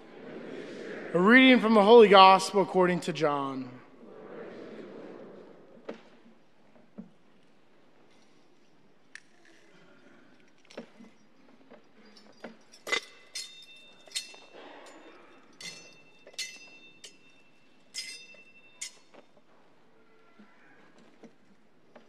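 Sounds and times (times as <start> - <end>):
metal chains clinking: 10.5 - 19.4.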